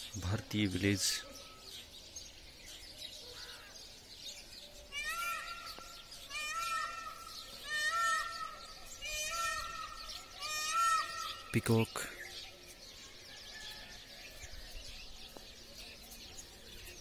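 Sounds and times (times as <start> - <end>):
small birds chirping: 0.0 - 17.0
peacock calling: 3.2 - 14.8.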